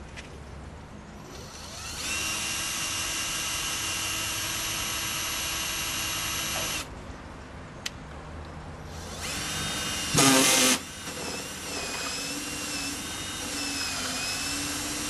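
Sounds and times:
power drill whining: 1.3s - 6.9s, 8.9s - 15.0s.

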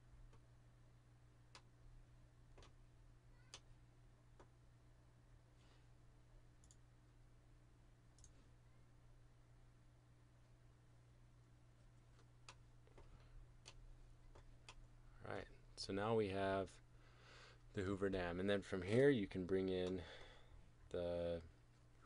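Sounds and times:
low steady hum: 0.0s - 22.0s
computer mouse clicks: 2.5s - 2.8s, 3.5s - 3.7s, 6.6s - 6.8s, 8.2s - 8.4s, 12.1s - 14.9s.

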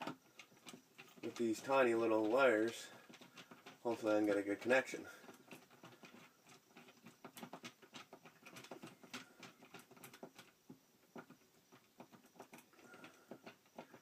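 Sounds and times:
screwdriver ticking and scraping: 0.0s - 14.0s.

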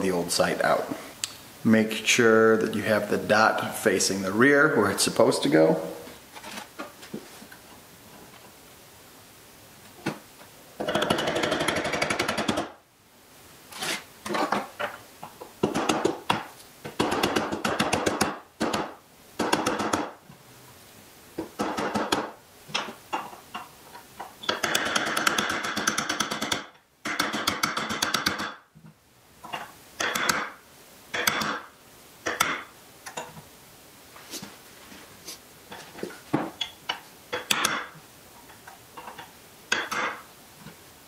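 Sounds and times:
hammer tapping metal punch: 24.5s - 28.6s, 30.0s - 30.5s, 31.1s - 33.3s, 37.4s - 37.9s.

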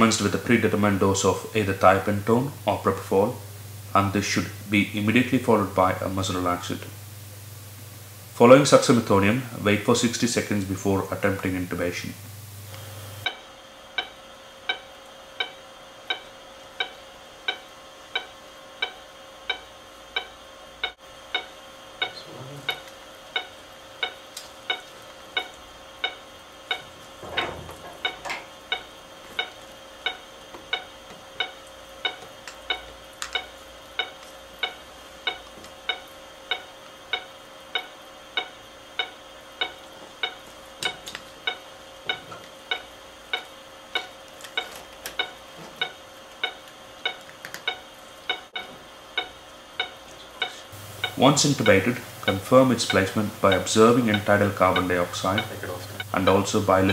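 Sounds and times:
patient monitor beeping: 11.1s - 56.9s
equipment clicks and knocks: 26.7s - 36.0s.

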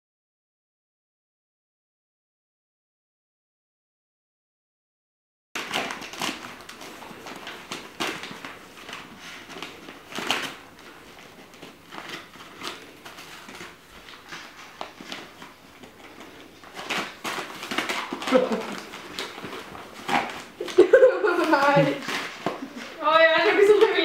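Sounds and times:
wrapping paper crinkling and tearing: 5.6s - 24.0s.

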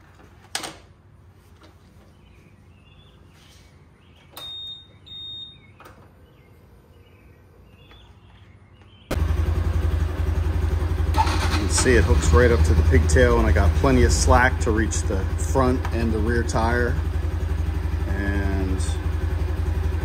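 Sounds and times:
motorcycle engine starting and running: 8.9s - 20.0s.

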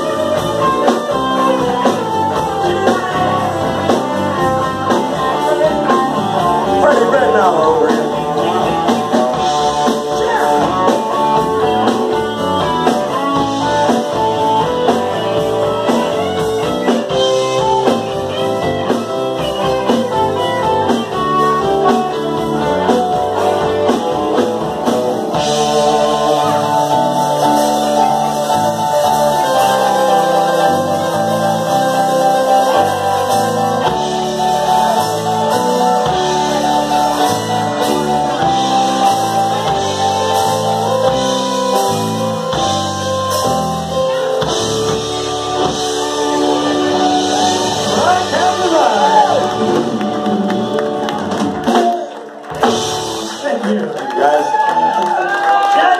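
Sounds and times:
man singing: 0.0s - 11.4s, 22.4s - 28.3s, 47.8s - 49.9s
live rock band playing: 0.0s - 55.9s.

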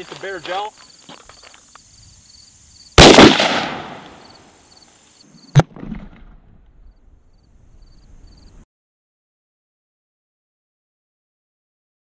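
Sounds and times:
rifle shot with echo: 3.0s - 4.2s.

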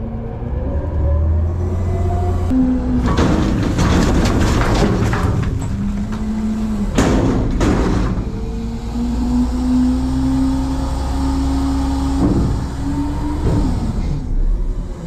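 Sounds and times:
diesel engine droning: 0.0s - 15.0s
trash bags crashing into hopper: 3.0s - 8.4s
sharp knocks: 3.1s - 8.4s.

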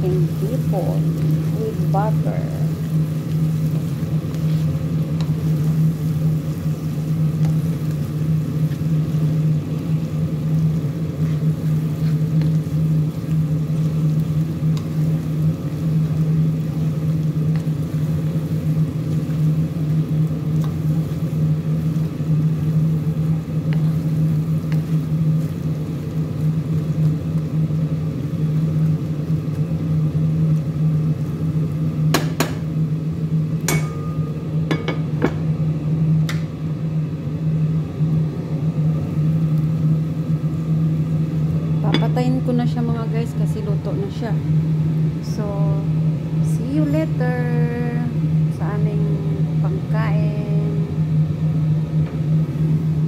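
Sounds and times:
shrimp sizzling in frying pan: 0.0s - 36.6s
low hum: 32.7s - 53.0s.

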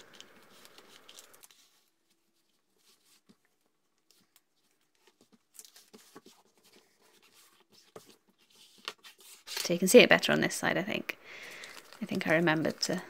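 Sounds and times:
paper backing peeling: 0.0s - 9.8s.

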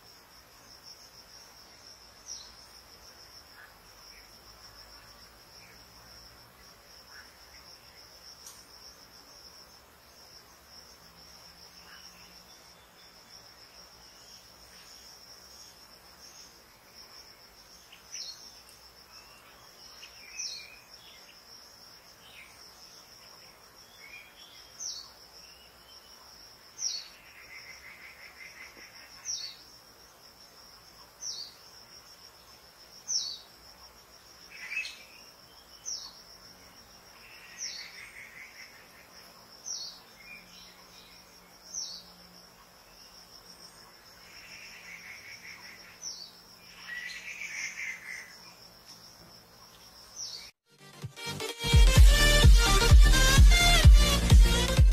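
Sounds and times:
high insect trill: 0.0s - 50.6s.

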